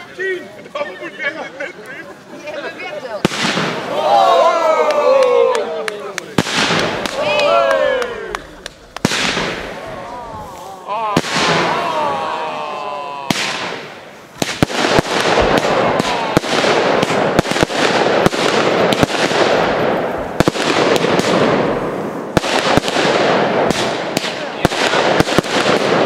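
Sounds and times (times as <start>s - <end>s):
fireworks crackle: 0.0s - 4.0s, 5.8s - 26.0s
fireworks bangs: 3.1s - 26.0s
fireworks whistling: 8.8s - 11.9s, 13.3s - 26.0s.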